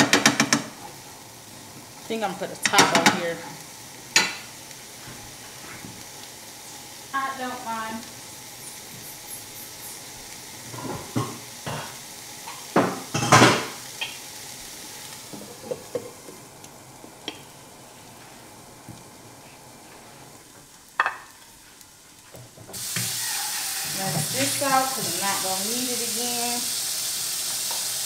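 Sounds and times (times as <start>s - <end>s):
peppers sizzling in a pan: 0.0s - 28.0s
metal pots and pans clattering: 12.8s - 13.7s.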